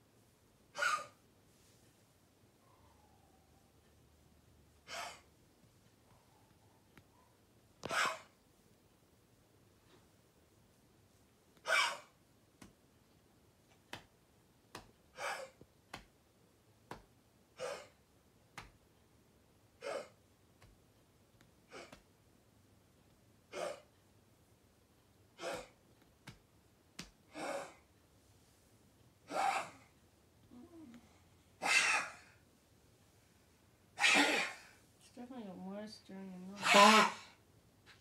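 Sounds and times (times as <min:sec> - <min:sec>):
dog coughing: 0:00.7 - 0:01.2, 0:04.9 - 0:05.3, 0:07.9 - 0:08.4, 0:11.6 - 0:12.1, 0:15.2 - 0:15.6, 0:17.6 - 0:18.0, 0:19.8 - 0:20.2, 0:21.7 - 0:22.0, 0:23.5 - 0:23.9, 0:25.4 - 0:25.8, 0:29.3 - 0:29.9, 0:31.6 - 0:32.3, 0:34.0 - 0:34.8, 0:36.6 - 0:37.3.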